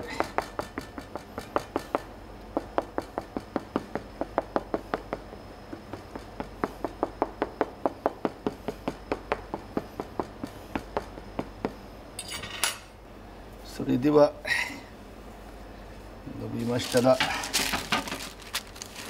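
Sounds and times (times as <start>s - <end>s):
fork tapping through dough: 0.0s - 11.8s.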